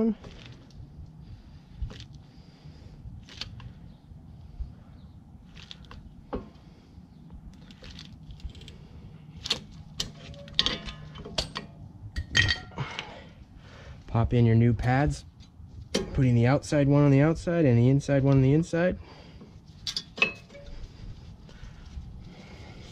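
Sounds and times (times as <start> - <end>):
metal tools clinking and rattling: 9.4 - 12.9, 19.8 - 20.9.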